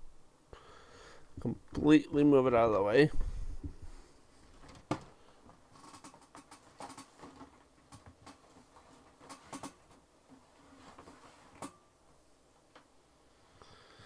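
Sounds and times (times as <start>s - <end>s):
plastic parts clicking and tapping: 4.6s - 10.0s.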